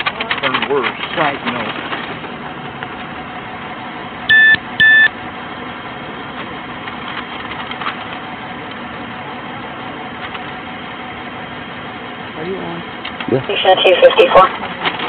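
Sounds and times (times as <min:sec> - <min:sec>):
vehicle idling hum: 0:00.0 - 0:15.0
short electronic beeps: 0:04.3 - 0:05.1.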